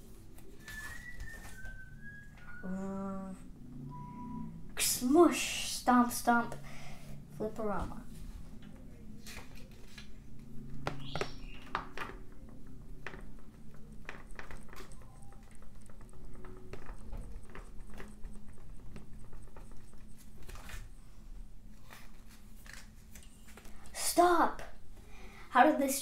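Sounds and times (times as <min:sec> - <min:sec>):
paper page flipping: 0:21.7 - 0:23.8.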